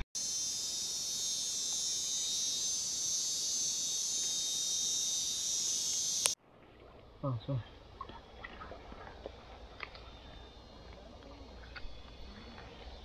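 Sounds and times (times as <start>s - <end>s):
chorus of insects buzzing: 0.2s - 6.4s.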